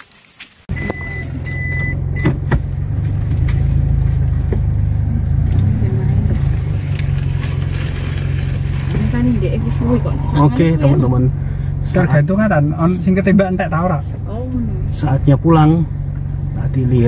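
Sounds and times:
electronic warning chime beeps: 0.7s - 2.3s
car engine running: 0.7s - 17.0s.

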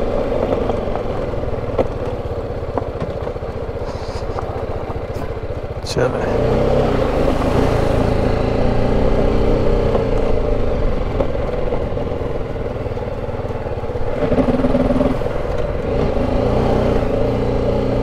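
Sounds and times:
motorcycle riding over gravel: 0.0s - 5.8s
motorcycle engine running: 0.0s - 18.0s.

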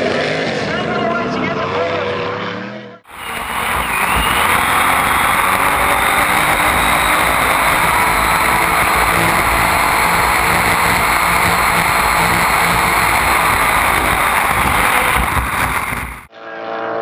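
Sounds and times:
powerboat engine roaring: 3.1s - 16.3s
water rushing: 3.1s - 16.3s.

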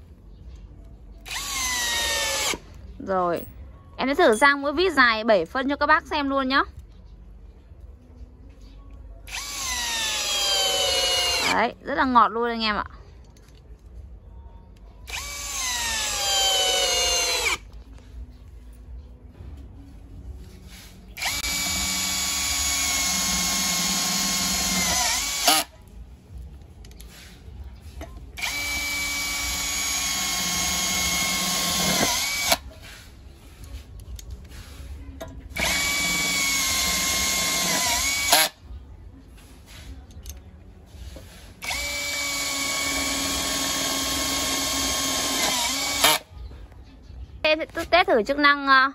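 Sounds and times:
drill driving screws into wood: 1.3s - 2.6s, 9.3s - 11.6s, 15.1s - 17.6s, 21.2s - 25.7s, 28.4s - 32.6s, 35.6s - 38.6s, 41.6s - 46.2s.

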